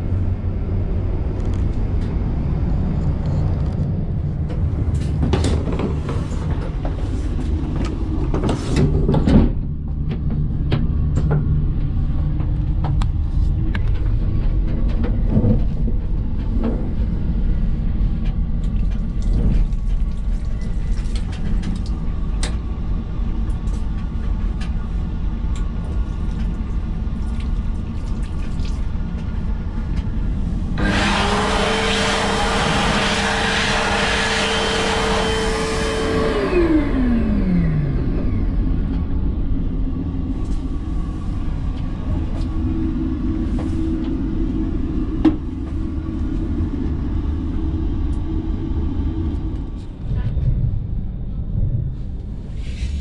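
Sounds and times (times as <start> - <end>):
train rumble: 0.0 - 53.0
hand dryer blowing: 30.7 - 38.7.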